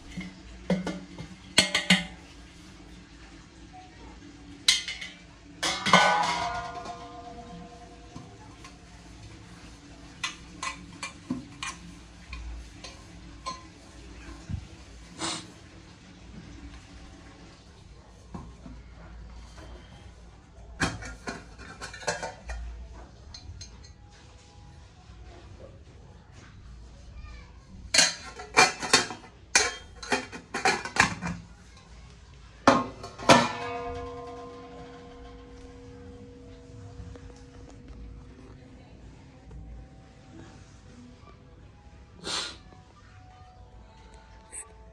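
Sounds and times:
brass vessel ringing: 0:33.2 - 0:37.8.

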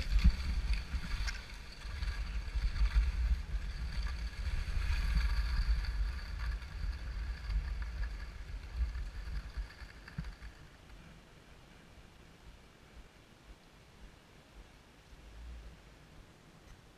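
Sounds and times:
wind buffeting microphone: 0:00.0 - 0:10.8
skis scraping on snow: 0:00.0 - 0:11.9.

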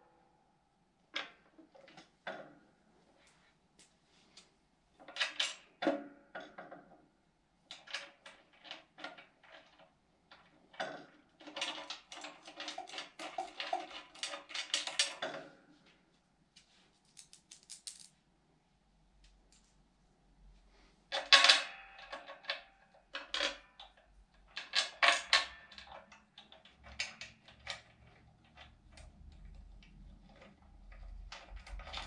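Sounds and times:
metal hardware clinking and rattling: 0:17.1 - 0:18.2.

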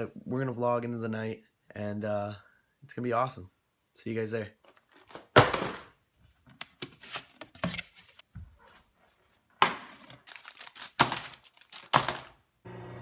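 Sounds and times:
paper plates clicking: 0:10.2 - 0:12.4
plastic wrapper crinkling: 0:10.2 - 0:12.4
microwave oven humming: 0:12.6 - 0:13.0.

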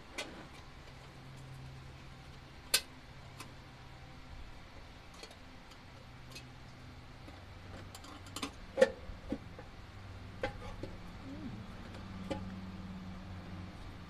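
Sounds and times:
low hum: 0:10.8 - 0:14.0.

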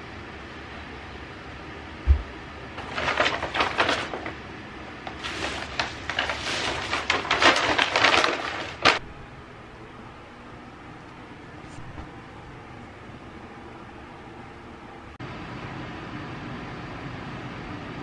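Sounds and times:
laundry basket thump: 0:02.1 - 0:02.3
bags rustling and crinkling: 0:02.8 - 0:04.4, 0:05.0 - 0:09.0.

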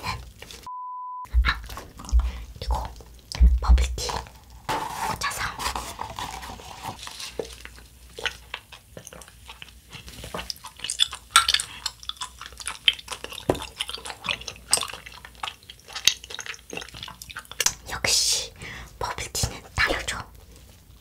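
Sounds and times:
wet chewing clicks: 0:01.3 - 0:04.6, 0:07.0 - 0:18.3.

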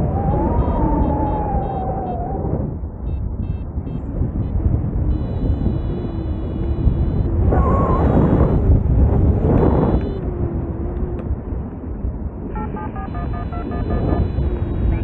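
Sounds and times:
wind rushing over microphone: 0:00.0 - 0:15.0
variometer beeping: 0:09.6 - 0:10.2, 0:12.6 - 0:15.0.

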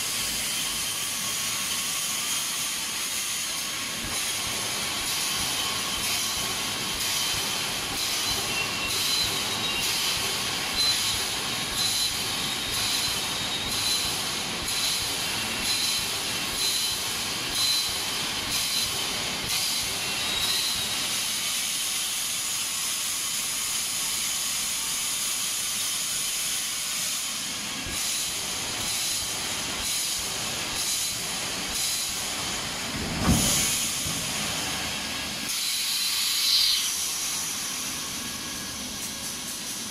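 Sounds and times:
pneumatic cylinders hissing: 0:00.0 - 0:39.9
loud low thud: 0:33.0 - 0:34.4.

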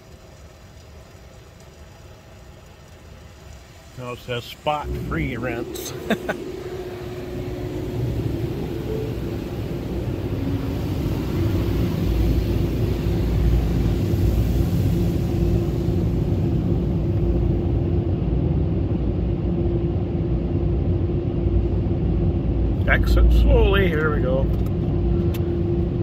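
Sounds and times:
water spraying over glass: 0:00.0 - 0:17.4
car wash machinery rumble: 0:00.0 - 0:26.0
steady hum: 0:00.0 - 0:26.0.

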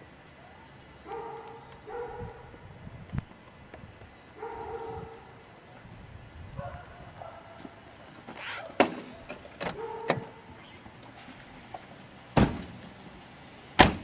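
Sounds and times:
car door slamming: 0:12.3 - 0:12.8, 0:13.8 - 0:14.0.

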